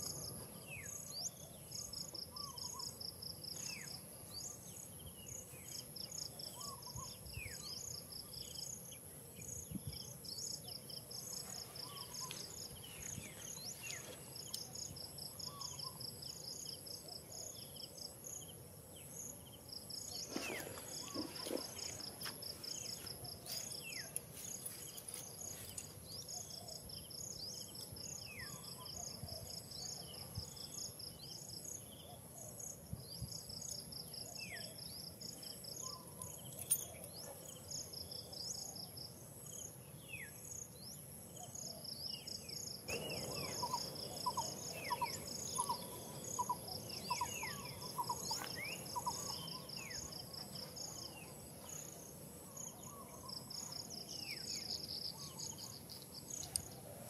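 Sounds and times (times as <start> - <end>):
insects buzzing: 0.0 - 57.0
insects chirping rapidly: 40.3 - 56.9
falling whistled bird calls: 42.9 - 50.1.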